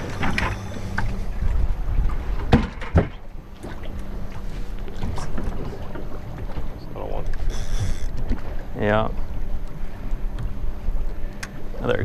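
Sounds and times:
wind buffeting microphone: 0.0s - 6.6s
faint steady hum: 0.0s - 12.0s
water rumbling around boat: 0.0s - 12.0s
sharp knocks on boat: 2.1s - 4.0s.

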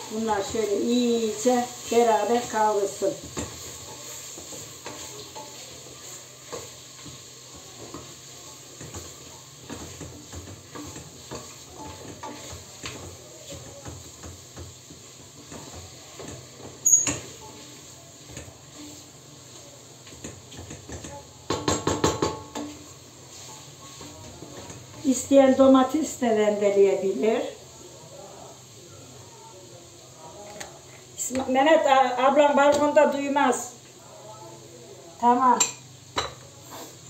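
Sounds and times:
faint sizzle: 0.0s - 37.0s
spoon clinking on pot: 16.2s - 17.3s
spoon scraping a metal pot: 16.2s - 17.7s.

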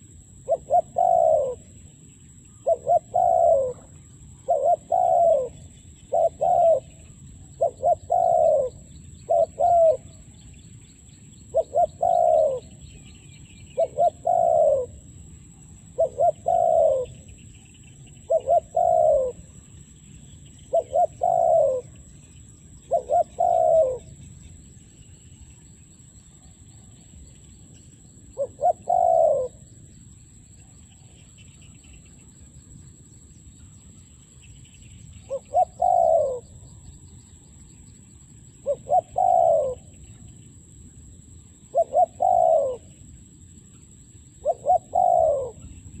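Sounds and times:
dove cooing: 0.0s - 1.9s, 2.5s - 10.4s, 11.4s - 15.2s, 15.8s - 17.4s, 18.0s - 19.6s, 20.6s - 22.1s, 22.8s - 24.2s, 28.3s - 29.8s, 35.2s - 36.8s, 38.6s - 40.2s, 41.6s - 43.0s, 44.4s - 46.0s
faint high chirping: 0.0s - 46.0s.

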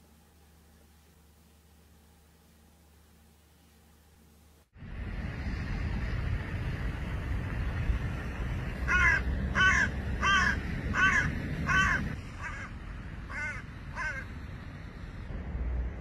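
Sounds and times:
crow cawing: 8.9s - 14.3s.

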